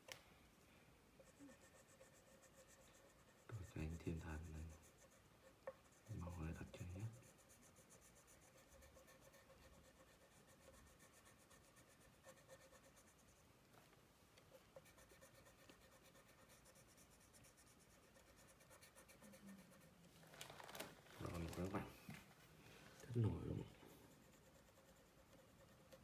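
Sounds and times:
crayon scratching on paper: 0:01.2 - 0:13.4, 0:14.7 - 0:20.1, 0:23.2 - 0:26.0.

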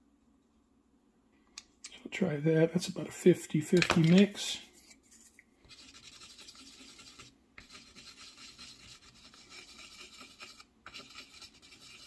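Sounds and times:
stir stick scraping paint palette: 0:03.7 - 0:12.0.

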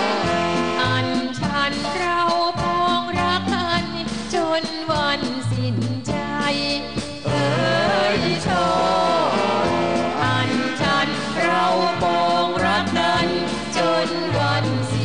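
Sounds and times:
band playing: 0:00.0 - 0:04.2, 0:06.8 - 0:15.0
man and woman singing duet: 0:05.4 - 0:15.0.

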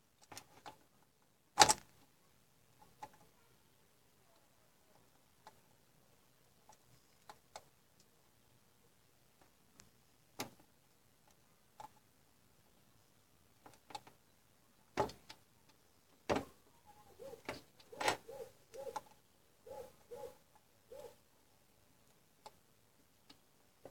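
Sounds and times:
faint clicks and knocks: 0:22.0 - 0:23.9.

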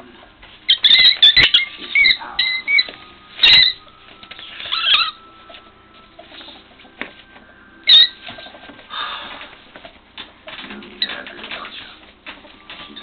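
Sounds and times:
ferret squeaks: 0:00.6 - 0:06.6, 0:07.8 - 0:08.6, 0:12.3 - 0:13.0.

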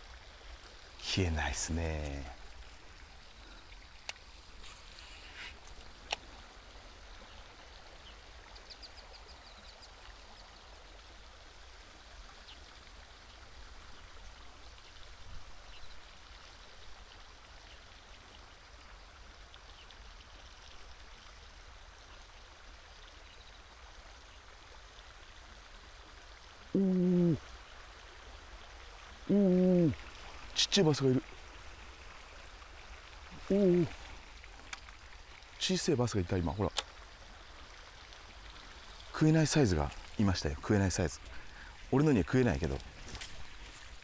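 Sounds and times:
faint steady hiss: 0:00.0 - 0:44.0
man's vocal exclamation: 0:26.8 - 0:27.4, 0:29.3 - 0:30.0, 0:33.4 - 0:34.0.

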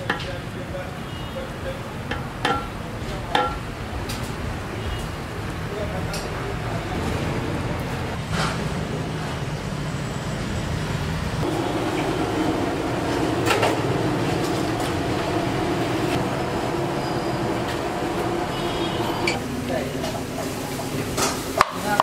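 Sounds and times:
steady rumbling roar: 0:03.7 - 0:20.4
hum: 0:11.4 - 0:19.5.

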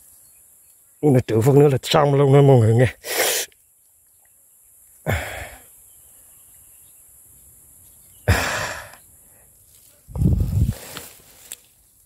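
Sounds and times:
faint steady hiss: 0:00.0 - 0:12.0
man exhaling forcefully: 0:05.1 - 0:05.6, 0:08.3 - 0:09.0.

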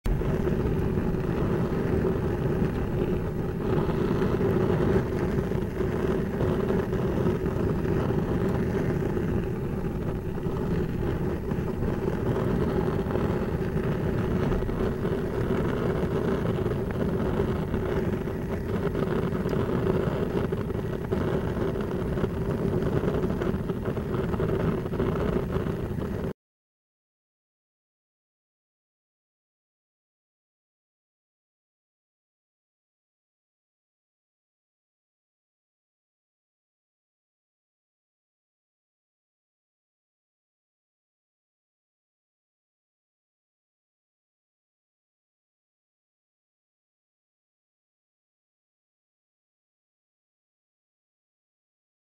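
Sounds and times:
gas burner flame rushing: 0:00.1 - 0:26.3
steady hum: 0:00.1 - 0:26.3.

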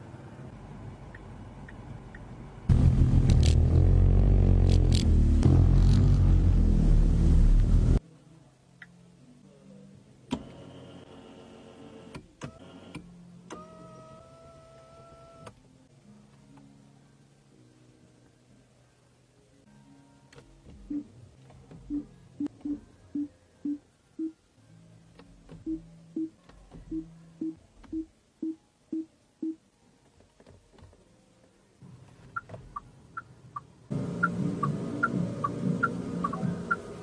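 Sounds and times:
soft plucked background music: 0:12.3 - 0:37.0.

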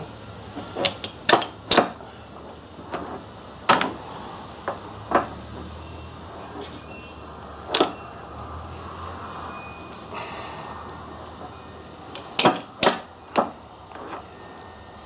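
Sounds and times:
sharp metal clicks and knocks: 0:00.8 - 0:02.0, 0:02.8 - 0:05.4, 0:07.7 - 0:08.0, 0:12.1 - 0:14.3.

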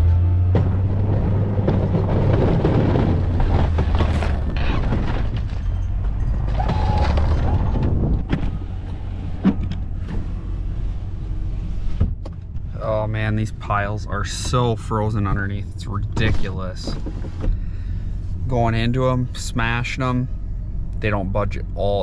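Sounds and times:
truck engine rumbling under load: 0:00.0 - 0:22.0
plow pushing into snow: 0:00.1 - 0:12.0.

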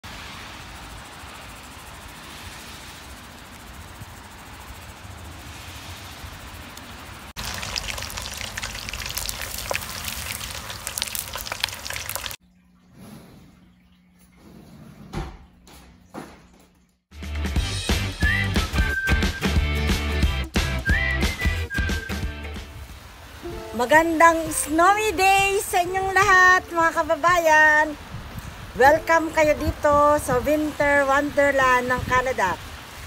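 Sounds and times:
steady hiss: 0:00.0 - 0:11.2
meat deep-frying in oil: 0:07.4 - 0:12.4.

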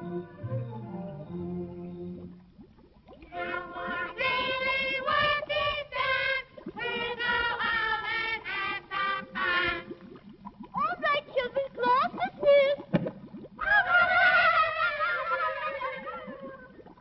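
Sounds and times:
chorus of high voices singing: 0:03.3 - 0:09.9.

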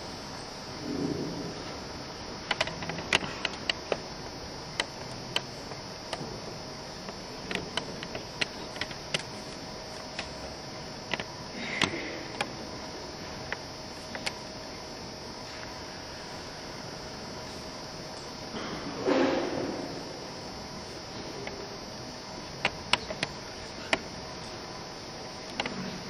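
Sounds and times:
faint electrical hum: 0:00.0 - 0:26.0
steady hiss: 0:00.0 - 0:26.0
sharp irregular clicks and taps: 0:02.5 - 0:04.0, 0:04.7 - 0:06.3, 0:07.0 - 0:10.4, 0:11.1 - 0:12.6, 0:13.5 - 0:14.5, 0:22.6 - 0:24.1, 0:25.4 - 0:25.8.

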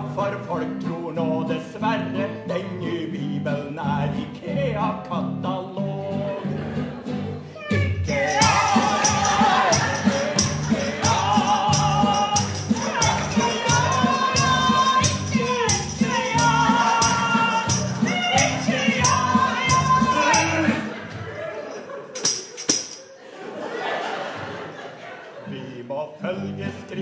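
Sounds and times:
strummed acoustic guitar: 0:05.8 - 0:21.0
high voice singing with vibrato: 0:07.5 - 0:20.9.

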